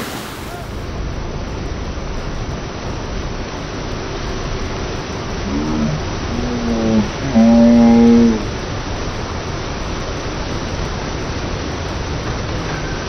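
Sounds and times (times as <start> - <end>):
water spray rushing: 0.0 - 13.0
low-pitched drawn-out voice: 5.4 - 8.5.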